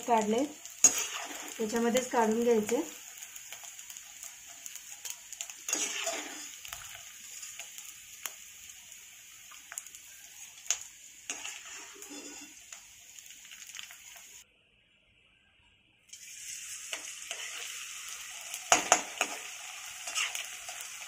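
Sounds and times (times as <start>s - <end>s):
hot oil sizzling: 0.0s - 14.4s, 16.1s - 21.0s
metal spoon clinking and scraping: 5.4s - 6.7s, 11.3s - 12.8s.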